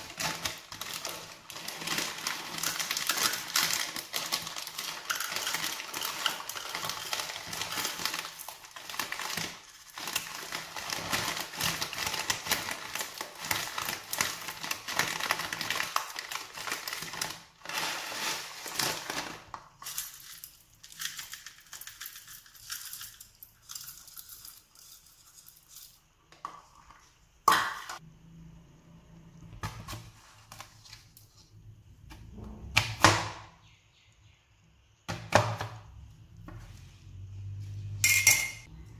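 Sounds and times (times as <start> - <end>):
foil packet crinkling: 0.0 - 23.1
nuts poured into plastic cup: 0.0 - 26.0.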